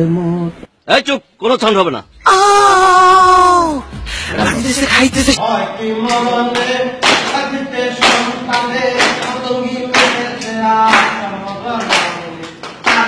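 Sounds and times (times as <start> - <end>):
man singing: 2.9 - 13.0
hands clapping in time: 11.8 - 13.0.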